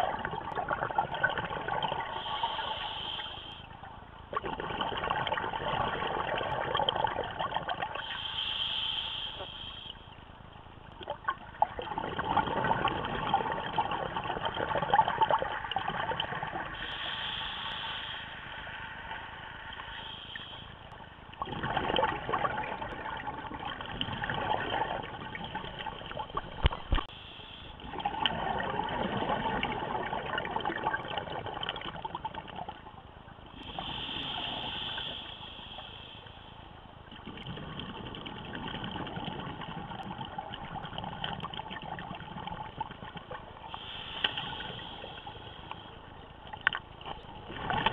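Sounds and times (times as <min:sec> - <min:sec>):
bubbling exhalations underwater: 0:00.0 - 0:02.6, 0:04.3 - 0:08.0, 0:11.0 - 0:16.7, 0:21.4 - 0:27.1, 0:27.8 - 0:32.8, 0:37.1 - 0:43.8, 0:46.6 - 0:47.9
regulator hissing inhalations: 0:02.1 - 0:03.7, 0:08.0 - 0:10.1, 0:16.7 - 0:20.9, 0:27.0 - 0:27.8, 0:33.6 - 0:36.6, 0:43.7 - 0:46.0.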